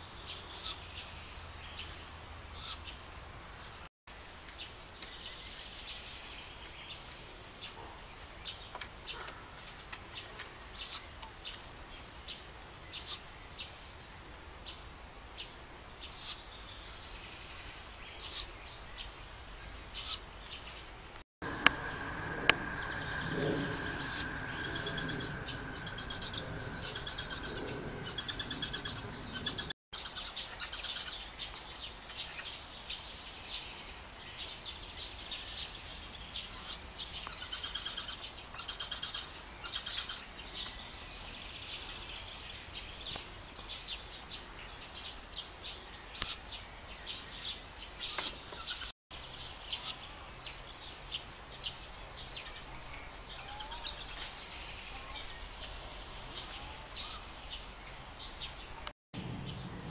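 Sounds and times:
owl chicks chirping: 2.5s - 3.0s, 21.5s - 31.2s.

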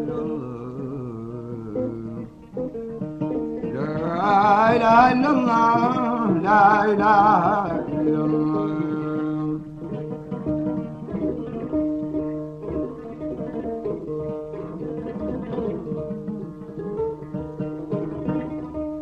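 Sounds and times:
person singing with vibrato: 0.0s - 2.5s, 3.7s - 9.9s
plucked guitar melody: 0.0s - 19.0s.

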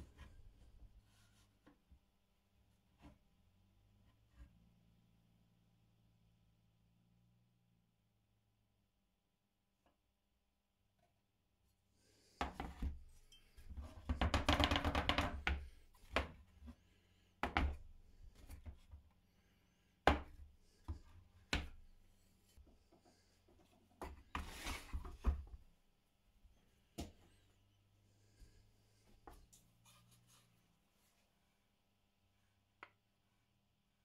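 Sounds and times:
sharp wooden knocks: 14.1s - 16.3s.

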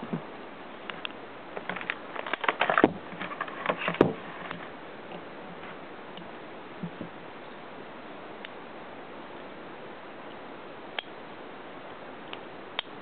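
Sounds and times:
handling rustles and clicks: 0.9s - 7.1s.

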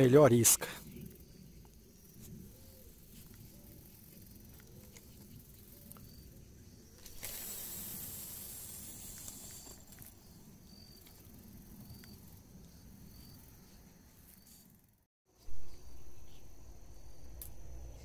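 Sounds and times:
faint insect chirps: 0.0s - 18.0s
steady hiss: 7.0s - 10.1s.

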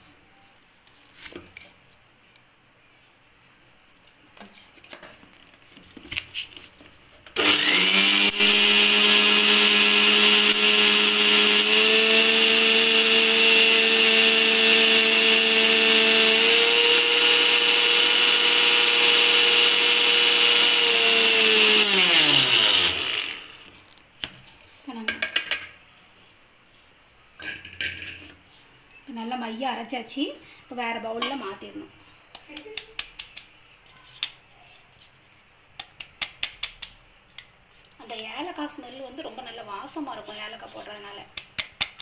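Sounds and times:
mixer grinder whining: 7.4s - 23.7s.

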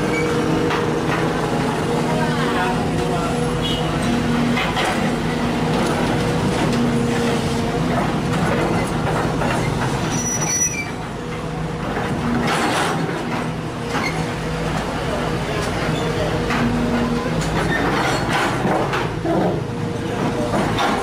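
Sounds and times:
excavator diesel engine droning: 0.0s - 21.0s
high squeal: 10.1s - 11.0s.

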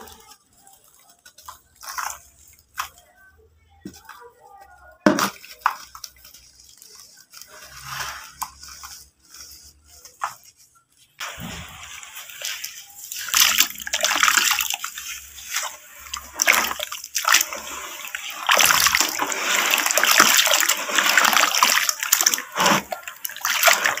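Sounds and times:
wet splashing and sloshing: 11.2s - 24.0s.

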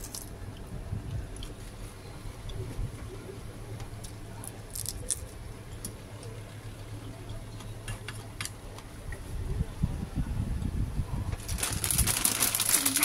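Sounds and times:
soft eating sounds: 0.0s - 9.8s.

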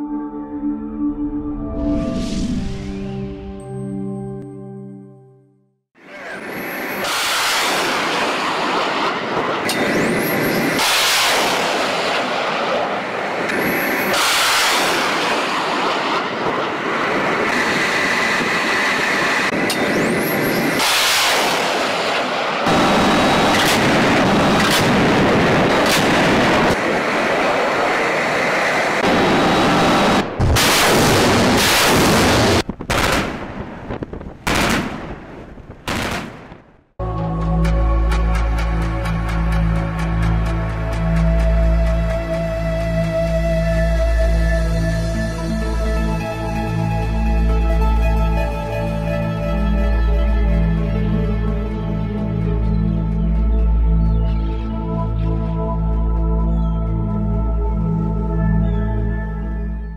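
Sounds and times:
rocket motors roaring: 6.0s - 36.8s
naval gunfire: 7.0s - 13.1s, 20.8s - 26.8s, 29.8s - 36.9s.

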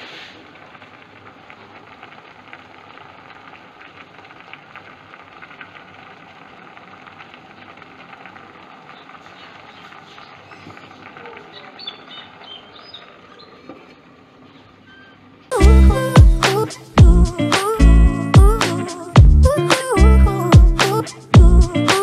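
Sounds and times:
pot bubbling with fine crackles: 0.0s - 15.4s
low steady hum: 15.5s - 18.6s.

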